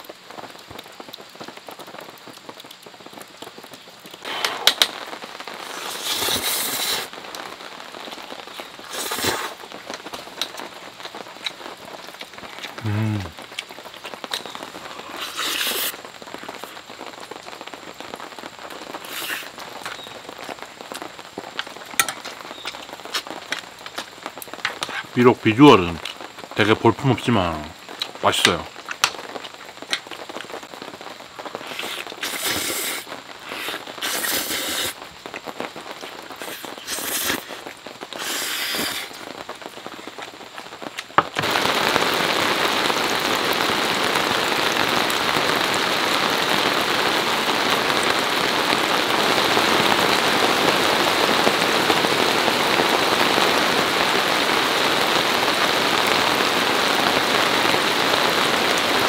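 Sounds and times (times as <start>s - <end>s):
water dripping: 0.0s - 5.4s
rain on a fabric tarp: 0.0s - 59.0s
person eating noodles: 5.6s - 7.1s, 8.8s - 9.6s, 14.8s - 16.0s, 19.0s - 19.5s, 31.6s - 35.0s, 36.4s - 39.3s.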